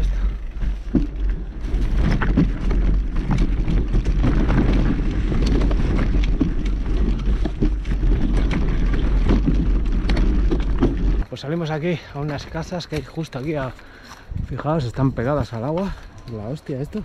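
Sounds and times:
bike knocks and rattles: 0.0s - 11.2s
low rumble: 0.0s - 11.3s
wind buffeting microphone: 12.8s - 16.3s.

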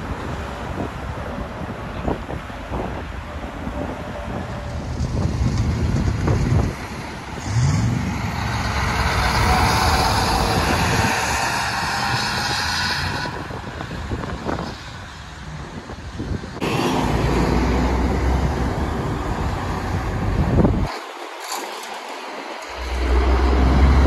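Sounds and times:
diesel truck accelerating past: 3.5s - 14.1s, 16.6s - 20.8s, 22.7s - 24.0s
low diesel truck rumble: 22.6s - 24.0s.

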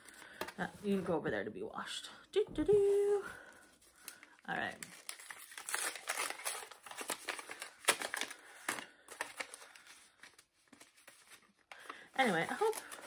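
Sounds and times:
paper rustling and crinkling: 3.7s - 13.0s.

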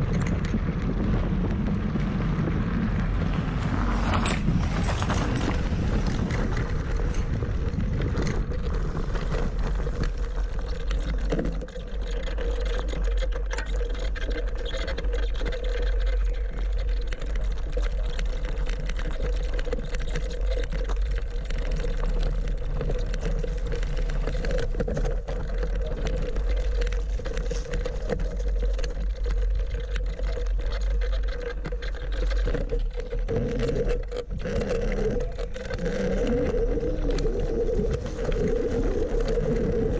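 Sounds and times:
electric scooter whine: 0.0s - 39.9s.

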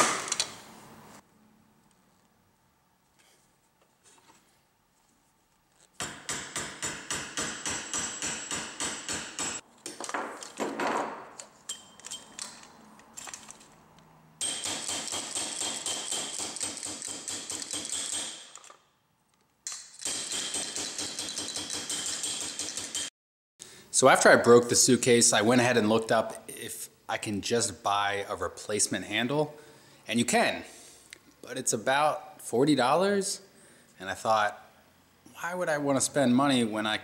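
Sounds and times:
hammer tapping on metal tube: 6.0s - 9.6s.

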